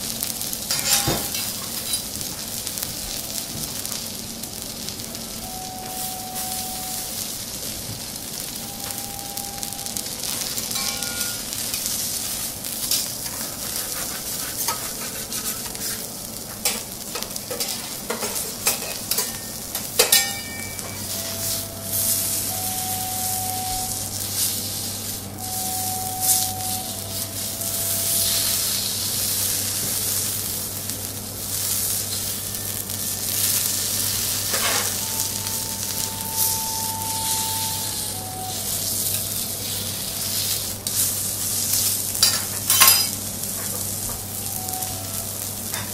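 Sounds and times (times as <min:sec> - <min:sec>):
steak sizzling on a griddle: 0:00.0 - 0:45.9
metal utensils tapping griddle: 0:00.7 - 0:02.1, 0:10.6 - 0:11.9, 0:16.5 - 0:22.1, 0:42.2 - 0:44.2.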